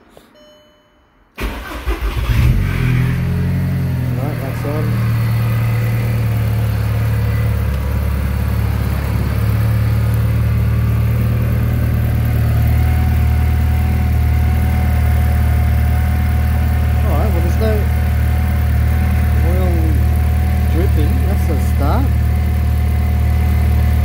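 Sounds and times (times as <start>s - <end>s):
car engine idling: 1.4s - 24.0s.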